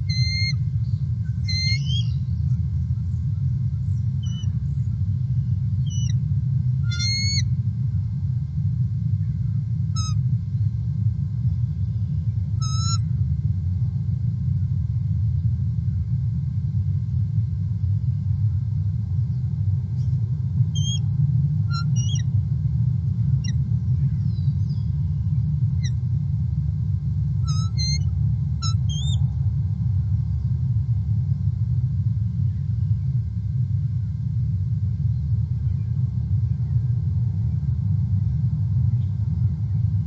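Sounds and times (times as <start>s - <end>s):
eagles chirping: 0.0s - 2.6s, 3.9s - 4.6s, 5.8s - 6.2s, 6.8s - 7.5s, 10.0s - 10.2s, 12.6s - 13.0s, 20.8s - 21.1s, 21.7s - 22.4s, 27.5s - 29.2s
steady low rumble: 0.0s - 40.0s.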